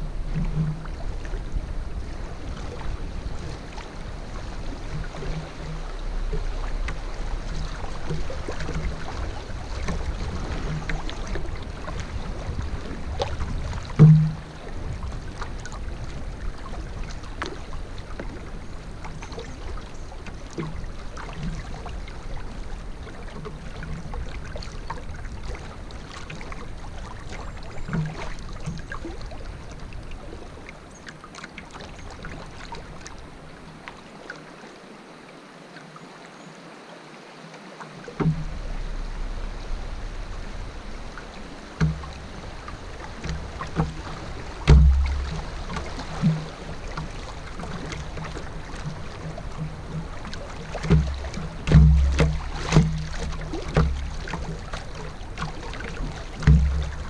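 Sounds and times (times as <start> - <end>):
low rumble: 0.0 - 16.0, 38.2 - 43.6
soft knocks on canoe: 0.0 - 21.9, 23.1 - 30.2, 38.0 - 57.0
paddle water splashing and dripping: 0.0 - 57.0
loud thump: 14.0 - 14.5, 44.7 - 45.3.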